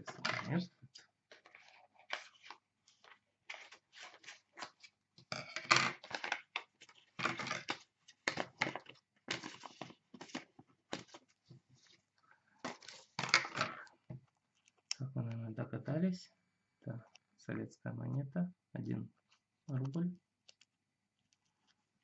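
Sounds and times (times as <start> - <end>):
cardboard rustling: 1.3 - 5.0, 6.0 - 13.5.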